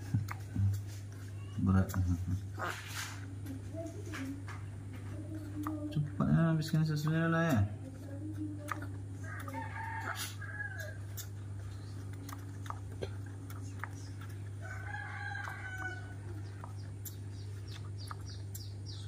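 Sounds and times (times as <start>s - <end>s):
rooster crowing: 9.2s - 11.0s, 14.6s - 16.3s.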